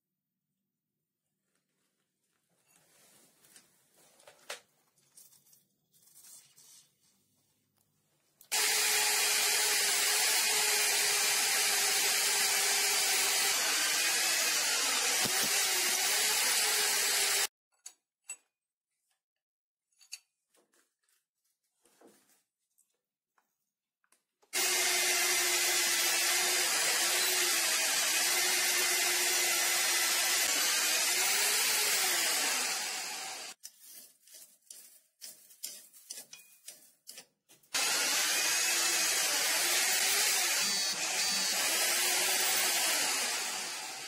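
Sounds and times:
rotary hammer drilling into metal: 8.5s - 17.5s, 24.6s - 33.6s, 37.8s - 44.0s.

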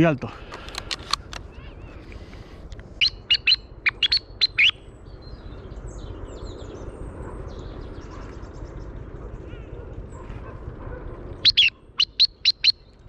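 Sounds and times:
bird chip calls: 3.0s - 5.4s, 11.4s - 13.0s.

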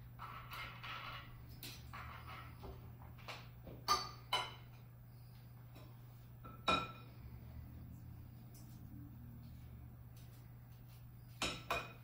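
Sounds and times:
steady low hum: 0.0s - 12.0s
utensils clinking on dishes: 11.3s - 12.0s.

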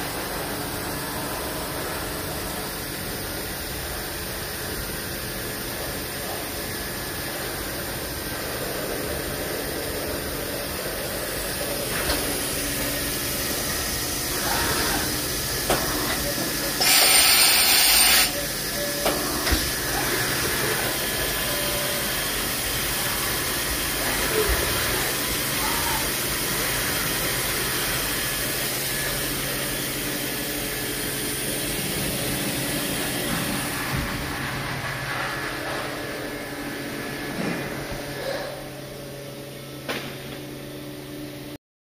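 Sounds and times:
machine-shop equipment humming: 0.0s - 41.6s
loud hiss of air: 16.7s - 18.4s.

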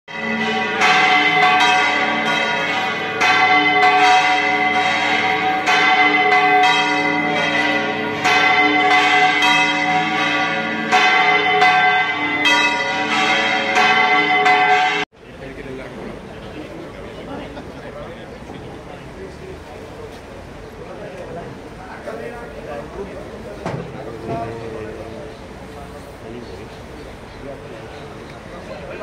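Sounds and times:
church bells ringing: 0.1s - 15.1s.

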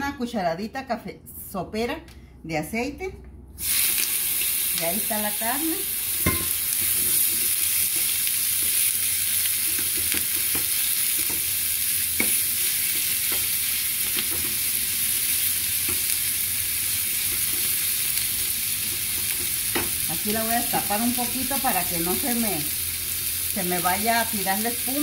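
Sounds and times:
ground beef sizzling in oil: 3.6s - 25.0s
spoon scraping and tapping pan: 6.2s - 8.8s.

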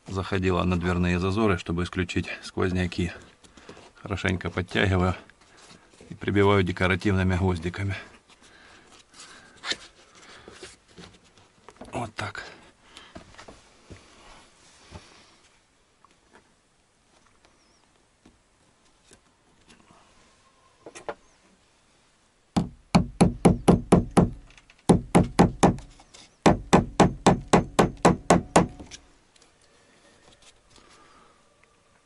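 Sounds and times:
hammer striking nails into wood: 22.6s - 29.0s.

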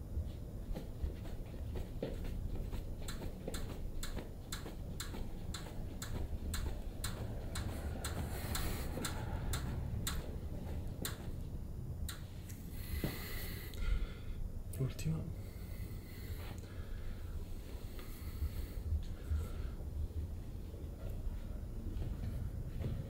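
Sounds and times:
low steady hum: 0.0s - 23.0s
light even ticking: 3.0s - 10.3s, 10.9s - 11.3s, 12.0s - 12.3s.

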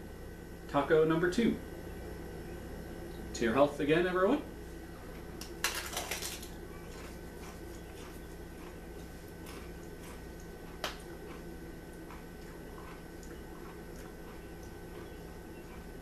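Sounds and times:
chewing with crunches: 4.8s - 16.0s
bite crunching into taco shell: 5.4s - 16.0s.

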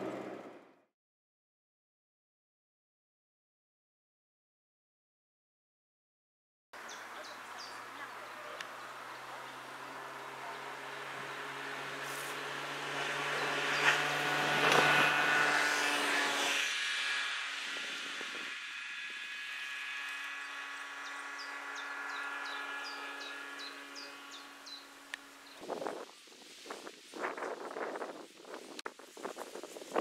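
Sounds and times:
vehicle engine running: 0.0s - 0.7s, 6.8s - 25.9s
bird chirping: 6.8s - 11.9s, 20.2s - 25.7s.

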